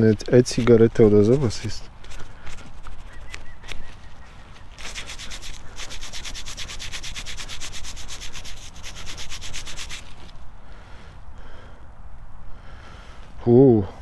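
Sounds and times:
fast rubbing on metal object: 4.8 - 10.3.

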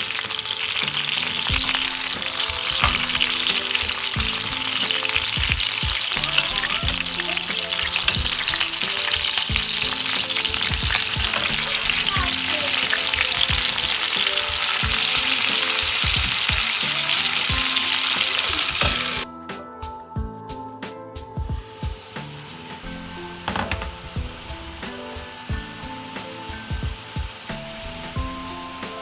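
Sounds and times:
chicken sizzling in pot: 0.0 - 19.3, 21.6 - 29.0
metal utensil knocking and scraping: 2.7 - 3.4.

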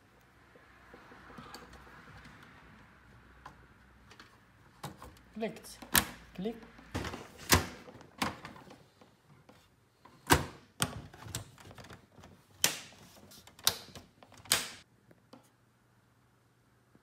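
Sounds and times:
computer case parts clicking: 10.2 - 14.8.

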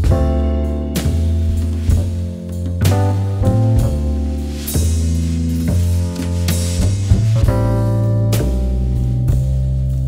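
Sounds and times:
drum hits: 0.0 - 9.6
bass and chord notes: 0.0 - 10.0.

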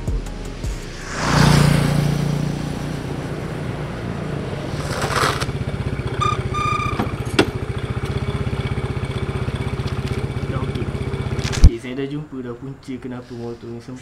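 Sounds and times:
scooter engine running: 2.0 - 11.7
short high brake squeals: 6.1 - 7.3.

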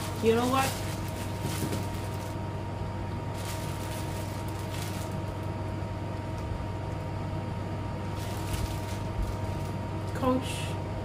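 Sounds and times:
plastic bag rustling: 0.0 - 2.5, 3.1 - 5.6, 8.0 - 10.3
air conditioner humming: 0.0 - 11.0.

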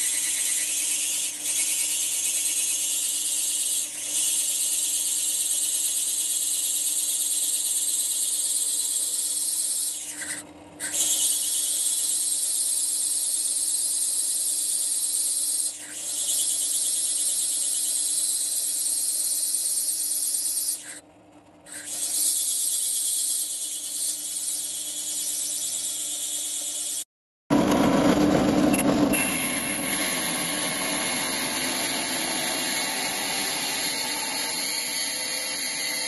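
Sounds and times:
high-pitched grinding hiss: 0.0 - 21.0, 29.1 - 36.0
low motor hum: 27.5 - 35.9.

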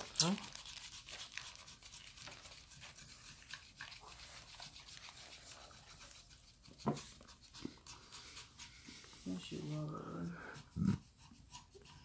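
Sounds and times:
scratch cards being scraped: 0.2 - 9.0.

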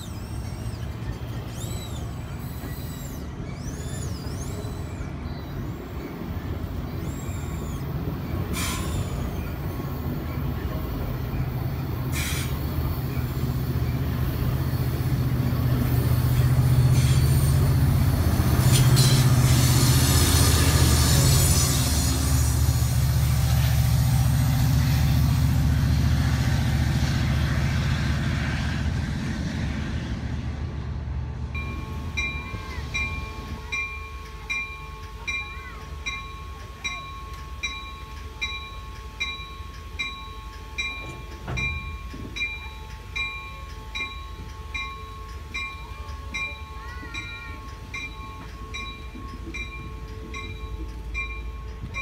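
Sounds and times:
train engine humming: 0.0 - 52.0
train rolling past: 0.0 - 52.0
locomotive bell ringing: 31.5 - 52.0.

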